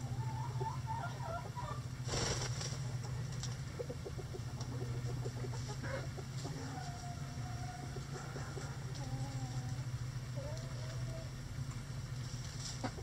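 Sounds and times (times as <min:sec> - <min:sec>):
hens clucking: 0:00.0 - 0:13.0
steady low hum: 0:00.0 - 0:13.0
rustle in litter: 0:12.2 - 0:12.9.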